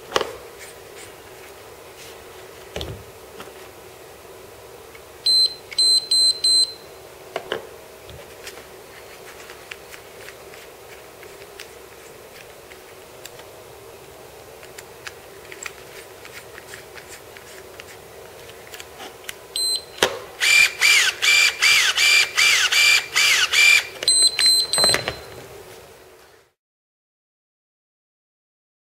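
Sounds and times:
short electronic beeps: 0:05.3 - 0:06.8
electric shears blade opening and closing: 0:20.0 - 0:25.3.

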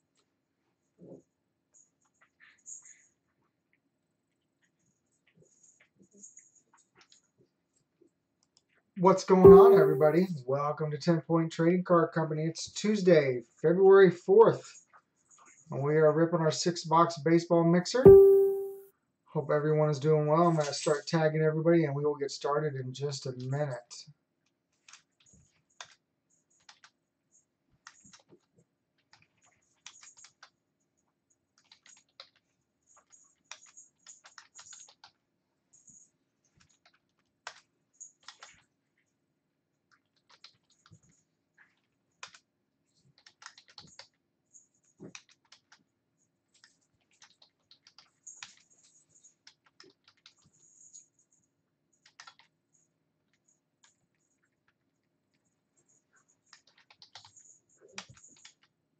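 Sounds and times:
typing on computer keyboard: 0:09.4 - 0:10.2, 0:26.6 - 0:27.0, 0:29.1 - 0:30.6, 0:31.6 - 0:35.2, 0:35.8 - 0:38.6, 0:39.9 - 0:44.2, 0:45.0 - 0:45.9, 0:46.5 - 0:51.1, 0:51.9 - 0:52.8, 0:56.4 - 0:58.8.

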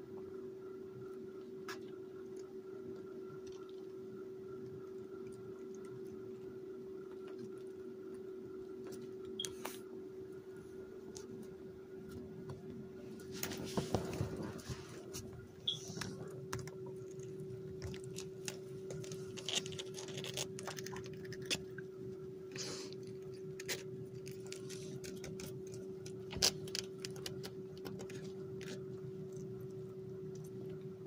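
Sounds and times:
steady hum: 0:00.0 - 0:31.0
kittens scuffling on blanket: 0:13.2 - 0:16.2.

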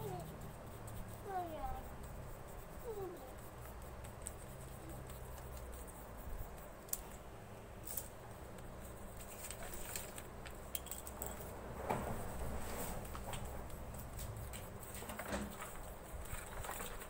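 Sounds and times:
pencil scratching on paper: 0:00.0 - 0:06.8, 0:08.6 - 0:10.0, 0:12.0 - 0:17.0.

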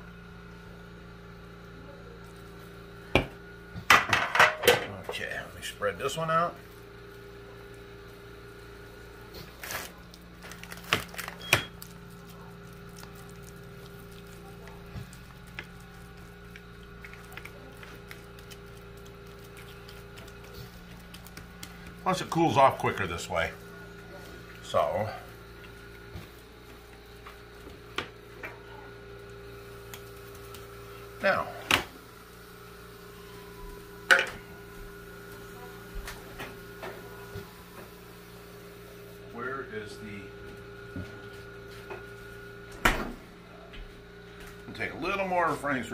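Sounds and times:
steady hum: 0:00.0 - 0:45.9
footsteps on kitchen floor: 0:25.5 - 0:28.6, 0:33.6 - 0:37.9, 0:40.4 - 0:44.8.

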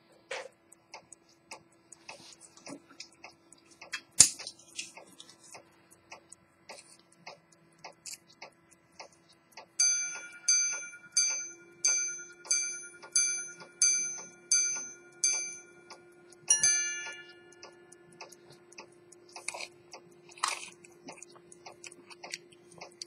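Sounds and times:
watch ticking faintly: 0:00.0 - 0:23.0
two-tone ding-dong chime: 0:09.8 - 0:15.9, 0:16.5 - 0:17.6.

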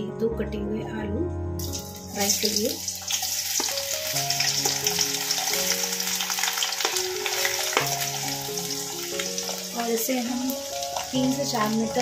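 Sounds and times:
background music: 0:00.0 - 0:12.0
potatoes sizzling in hot oil: 0:01.6 - 0:12.0.

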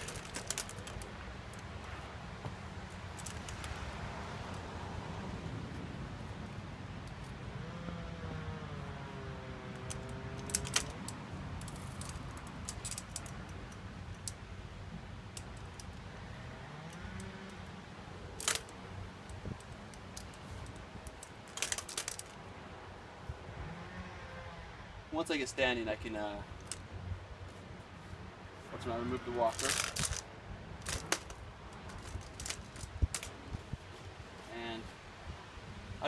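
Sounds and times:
metal walker clicking and rattling: 0:00.0 - 0:01.8, 0:09.7 - 0:14.4, 0:18.4 - 0:22.4, 0:29.4 - 0:30.2, 0:30.8 - 0:33.4.

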